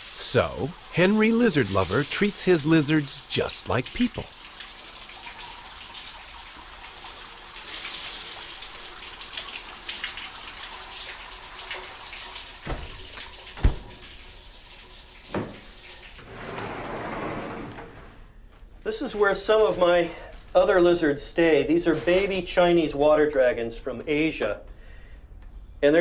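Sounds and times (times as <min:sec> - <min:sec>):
water dripping: 0:00.0 - 0:16.2
cabinet door knocks: 0:13.6 - 0:14.0.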